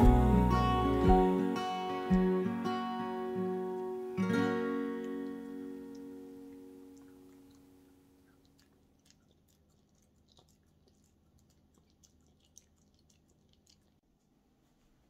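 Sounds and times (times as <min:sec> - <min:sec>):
acoustic guitar music: 0:00.0 - 0:07.5
dog chewing wet food: 0:05.0 - 0:14.3.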